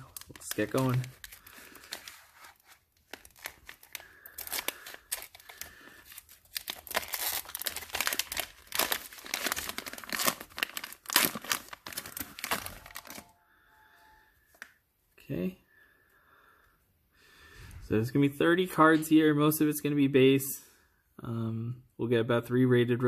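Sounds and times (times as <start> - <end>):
plastic wrapper crinkling: 0.0 - 13.4.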